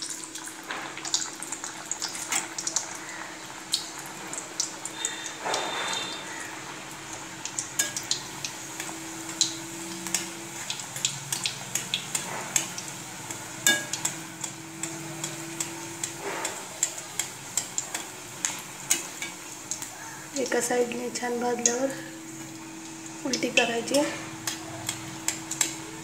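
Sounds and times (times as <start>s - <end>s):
food deep-frying in hot oil: 0.0s - 26.0s
oil crackling and popping: 0.0s - 26.0s.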